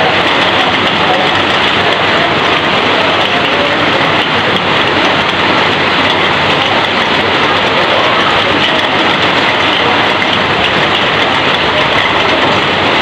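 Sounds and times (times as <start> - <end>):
heavy rain pouring off roof: 0.0 - 13.0.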